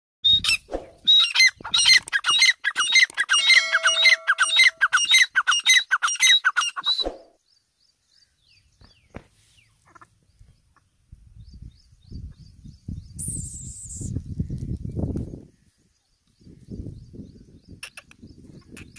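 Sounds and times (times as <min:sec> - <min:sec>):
bird calling harsh notes: 0:00.2 - 0:07.4.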